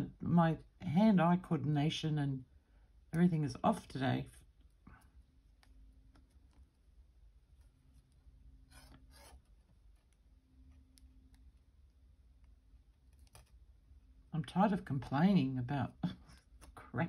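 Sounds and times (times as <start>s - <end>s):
wire scratching and clicking: 4.5s - 14.1s.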